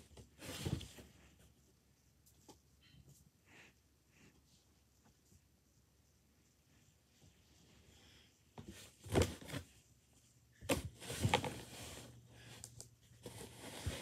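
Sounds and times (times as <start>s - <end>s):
rustling and handling noises: 0.0s - 3.4s, 4.2s - 14.0s.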